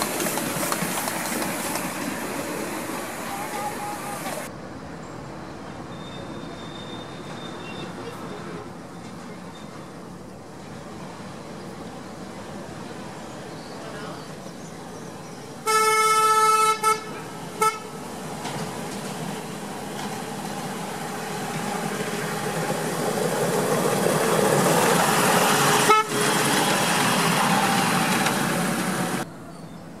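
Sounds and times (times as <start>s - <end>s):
railcar running on track: 0.0s - 30.0s
railcar horn toots: 15.6s - 18.0s, 25.8s - 26.4s.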